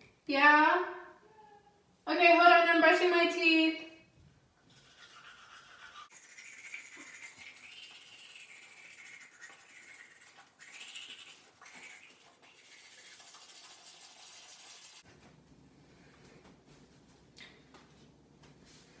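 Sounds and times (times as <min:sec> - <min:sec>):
toothbrush scrubbing teeth: 0:04.6 - 0:15.0.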